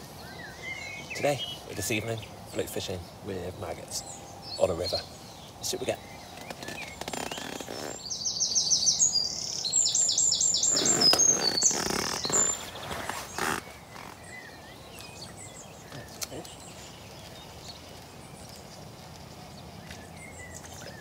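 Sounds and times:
songbird singing: 0.0 - 21.0
rustling: 10.7 - 15.2.

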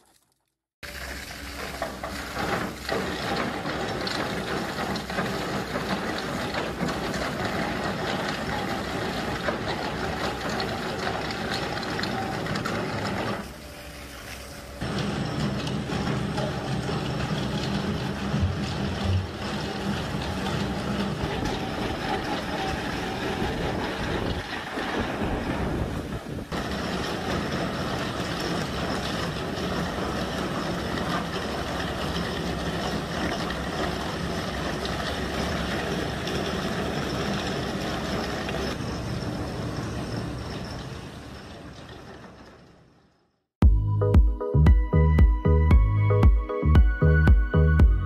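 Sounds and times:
excavator engine humming: 0.8 - 48.0
drum cutter grinding rock: 14.8 - 25.8.

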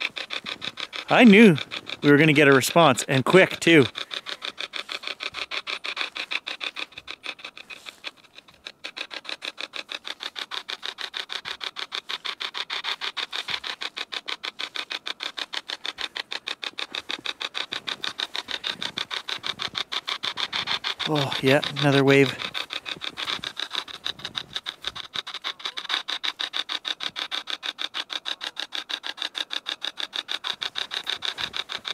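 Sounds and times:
chopping radio static: 1.1 - 3.9, 21.0 - 22.6.

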